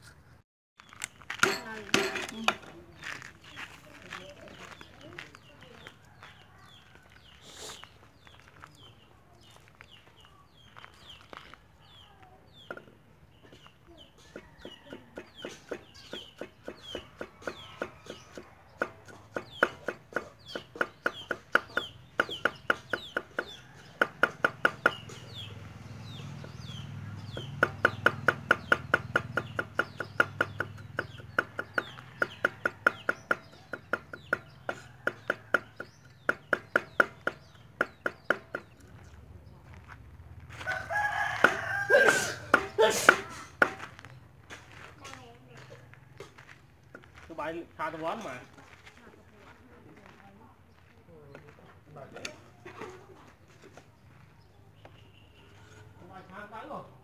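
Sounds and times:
chicks cheeping: 0:04.5 - 0:39.6
cleaver chopping on wooden block: 0:14.3 - 0:25.4, 0:26.4 - 0:38.9, 0:41.3 - 0:44.0.

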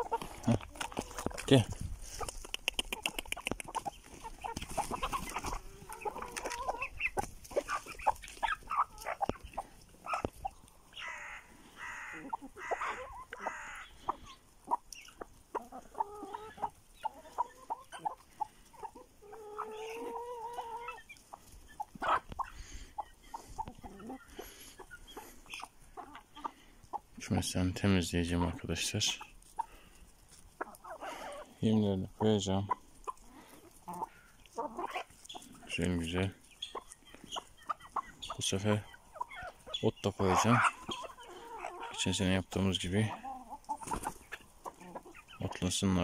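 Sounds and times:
drawn-out hen call: 0:00.0 - 0:46.0
hens clucking and squawking: 0:00.0 - 0:46.0
pecking clicks: 0:02.2 - 0:03.9.

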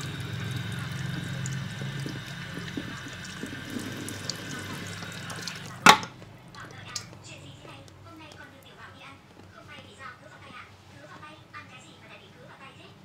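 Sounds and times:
water spraying from shower head: 0:00.0 - 0:06.1.

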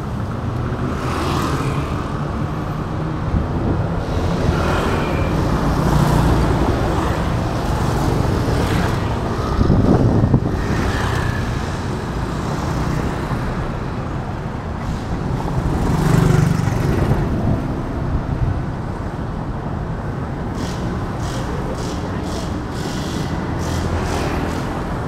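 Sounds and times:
road noise with passing vehicles: 0:00.0 - 0:25.0.

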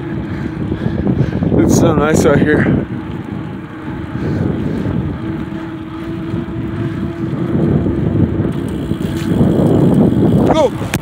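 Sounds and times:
wind buffeting microphone: 0:00.0 - 0:11.0
thin steady hum: 0:02.6 - 0:10.5.

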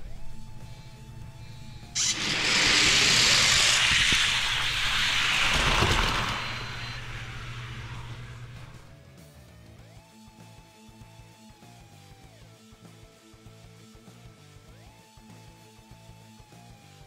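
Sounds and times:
toy cars rolling down plastic track: 0:02.0 - 0:08.8.

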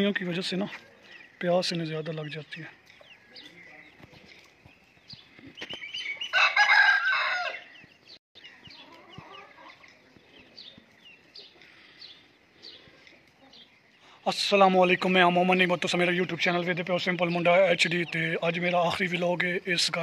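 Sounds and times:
small birds chirping: 0:00.0 - 0:20.0
rooster crowing: 0:06.3 - 0:07.8.

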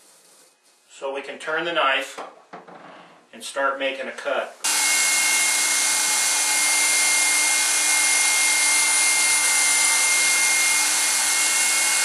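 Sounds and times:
electric knife sawing foam: 0:04.6 - 0:12.0.

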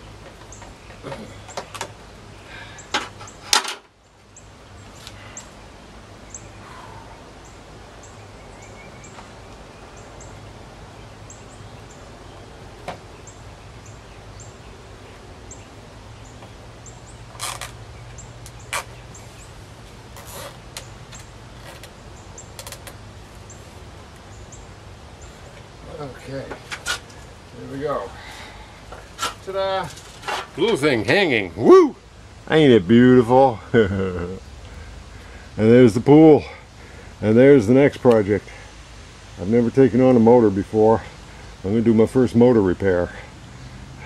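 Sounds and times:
strap buckles clicking and rattling: 0:20.2 - 0:22.0, 0:22.6 - 0:23.0.

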